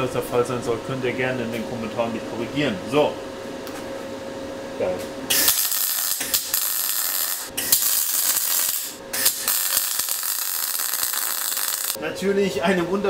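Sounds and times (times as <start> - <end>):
welding arc sizzling and crackling: 5.3 - 12.0.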